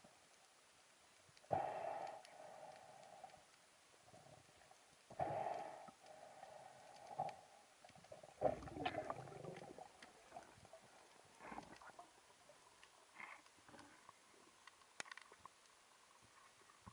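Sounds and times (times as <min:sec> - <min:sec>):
muffled underwater sound: 0:04.1 - 0:14.7.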